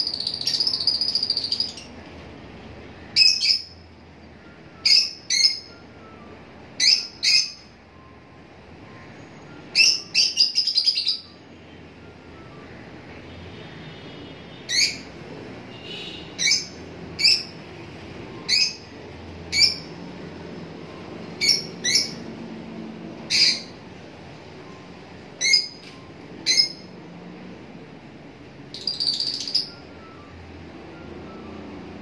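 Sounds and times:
lovebirds calling: 0.0 - 2.0, 3.1 - 5.8, 6.8 - 7.8, 9.7 - 11.4, 14.7 - 15.1, 15.8 - 17.6, 18.4 - 20.0, 21.3 - 22.3, 23.2 - 23.8, 25.4 - 26.9, 28.7 - 30.0.

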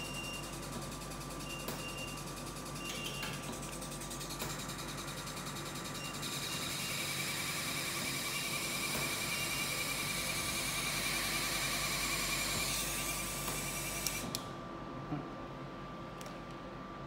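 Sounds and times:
machine hissing whir with whine: 3.4 - 14.4.

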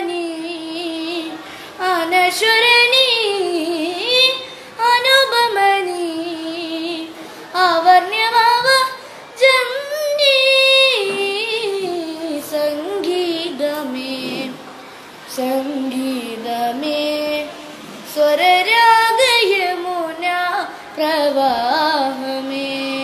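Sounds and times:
boy singing: 0.0 - 14.6, 15.3 - 23.0
short breaths: 1.4 - 1.8, 4.4 - 4.8, 7.2 - 7.6.

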